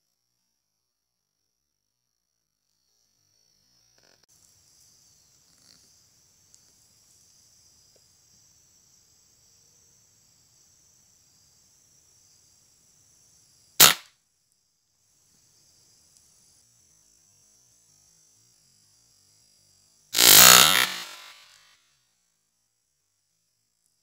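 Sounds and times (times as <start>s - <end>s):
insects chorus: 2.6s - 21.6s
air rifle shot: 13.8s - 14.0s, 20.2s - 21.4s.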